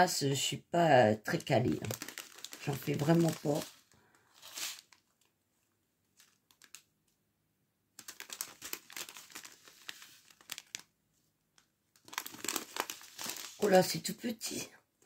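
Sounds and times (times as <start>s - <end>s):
plastic bags crinkling: 1.3s - 5.3s, 6.1s - 6.9s, 8.0s - 10.9s, 11.6s - 14.1s.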